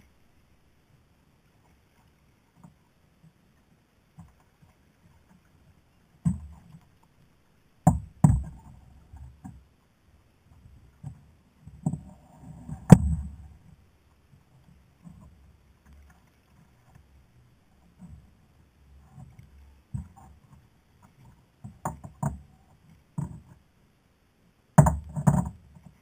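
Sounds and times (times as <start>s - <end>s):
knocks on plastic kayak hull: 7.9s - 8.7s, 24.8s - 25.6s.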